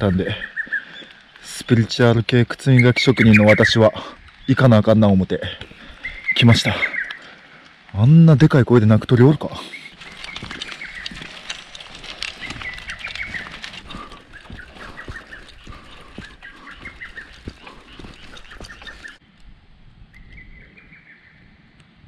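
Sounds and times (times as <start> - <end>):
bird calling loudly: 0.0 - 1.4, 2.6 - 4.6, 5.7 - 7.5, 9.6 - 19.2
bicycle clicks and rattles: 9.9 - 19.2.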